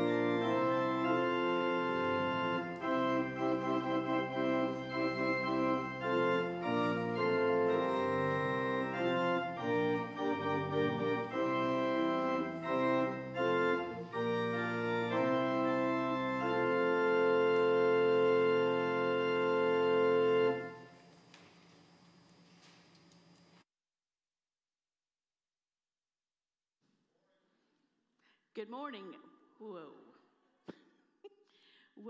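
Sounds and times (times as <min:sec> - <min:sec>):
pipe organ chords: 0:00.0 - 0:21.0.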